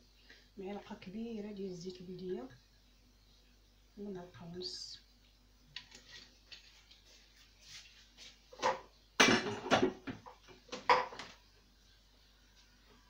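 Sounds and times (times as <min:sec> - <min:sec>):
knocks and clatters of bowl: 0:08.6 - 0:11.3.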